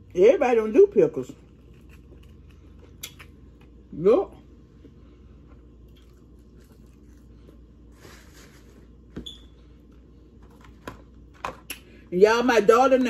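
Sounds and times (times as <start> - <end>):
chewing fries: 1.2 - 3.8, 5.4 - 8.0.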